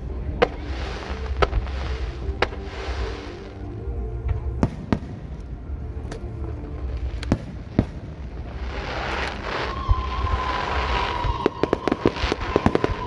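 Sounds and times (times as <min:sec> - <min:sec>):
firework hiss: 0:00.0 - 0:03.8, 0:06.9 - 0:13.0.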